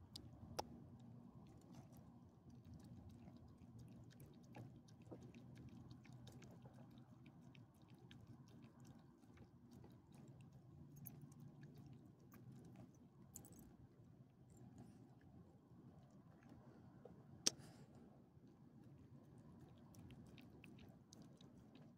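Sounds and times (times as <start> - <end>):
dog chewing and lip-smacking: 0.0 - 13.8, 18.8 - 21.9
low steady hum: 0.0 - 21.9.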